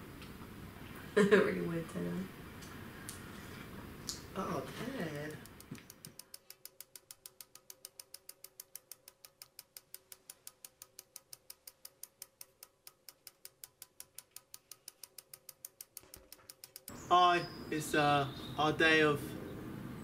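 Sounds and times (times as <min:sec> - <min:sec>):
faint even clicking: 0:05.3 - 0:17.0.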